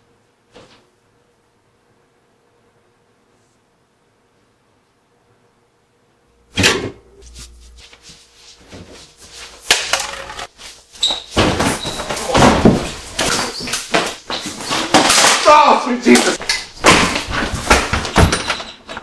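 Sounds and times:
shuffling and rustling: 0:07.2 - 0:15.0
bodies thudding against fridge: 0:11.2 - 0:14.9.

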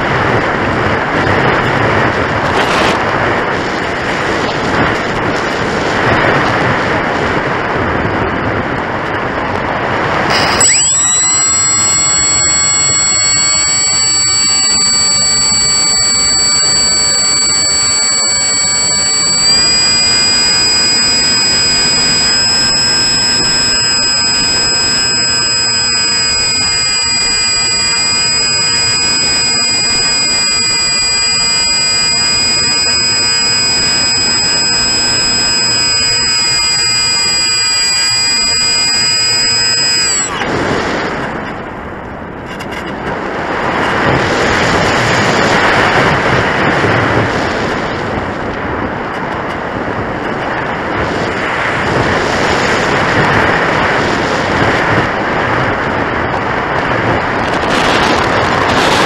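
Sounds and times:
electric motor and propeller whining: 0:10.3 - 0:40.6.

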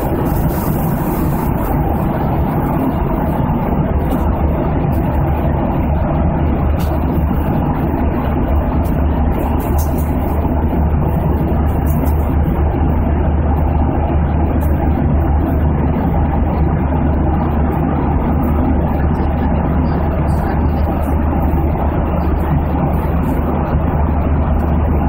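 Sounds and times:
aircraft engine drone: 0:00.0 - 0:25.0
airflow rushing: 0:00.0 - 0:25.0.

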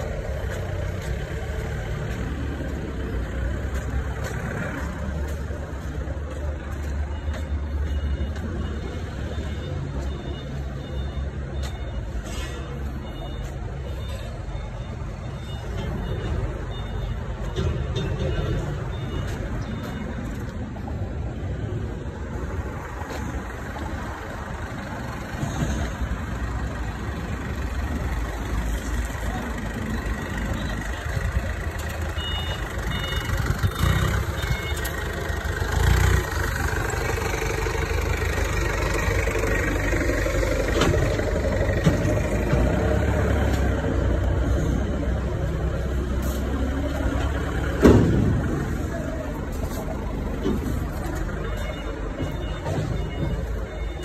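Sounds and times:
forklift engine running: 0:00.0 - 0:54.0
short high beeps: 0:32.0 - 0:35.2.

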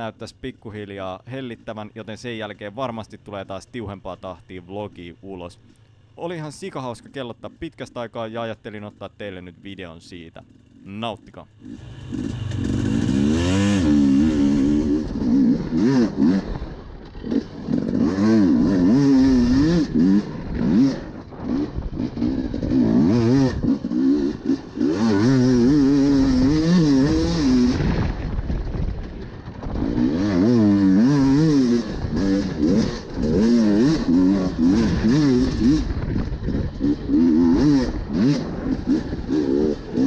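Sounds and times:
dirt bike engine revving: 0:10.4 - 0:40.0.

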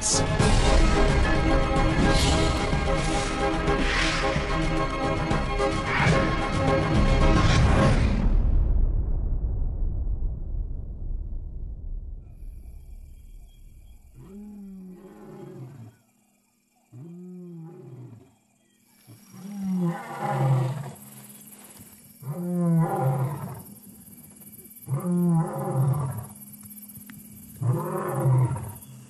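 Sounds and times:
lion roaring: 0:14.2 - 0:16.0, 0:19.3 - 0:21.0, 0:22.2 - 0:23.6, 0:24.9 - 0:26.4, 0:27.6 - 0:28.8.

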